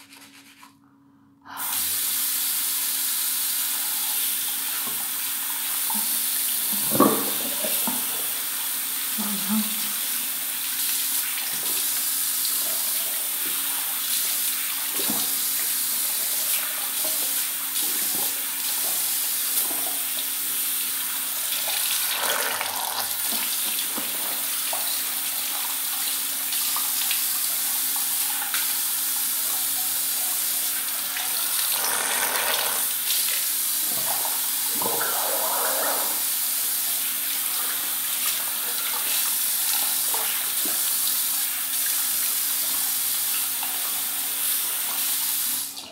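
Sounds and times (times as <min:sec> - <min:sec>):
toothbrush scrubbing: 0:00.0 - 0:00.8, 0:31.4 - 0:32.9
tap water running: 0:03.5 - 0:45.9.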